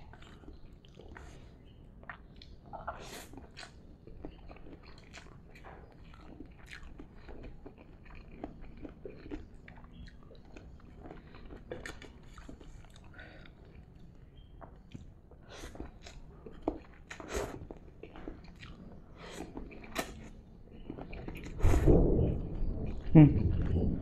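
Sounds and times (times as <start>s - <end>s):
person chewing crunchy food: 0.0s - 21.6s
low steady hum: 0.0s - 24.0s.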